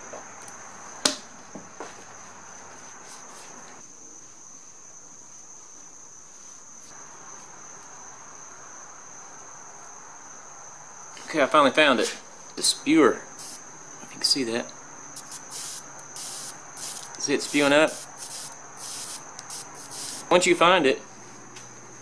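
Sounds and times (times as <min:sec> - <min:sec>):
crickets trilling: 0:00.0 - 0:22.0
spray bottle squirting: 0:13.4 - 0:13.6, 0:15.2 - 0:20.3.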